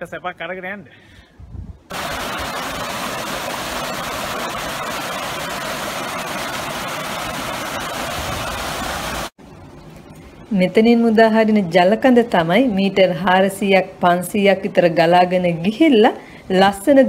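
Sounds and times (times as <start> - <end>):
water rushing over a weir: 1.9 - 9.3.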